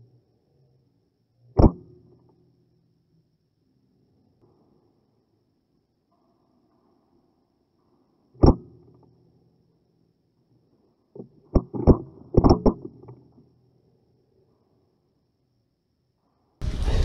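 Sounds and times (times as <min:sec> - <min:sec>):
airsoft rifle shot: 0:01.6 - 0:01.9, 0:08.4 - 0:08.7.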